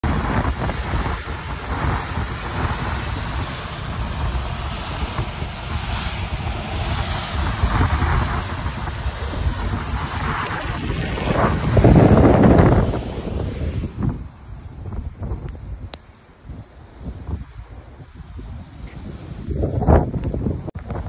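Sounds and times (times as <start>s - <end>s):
bow wave rushing hiss: 0.0s - 15.4s
wind buffeting microphone: 0.0s - 21.0s.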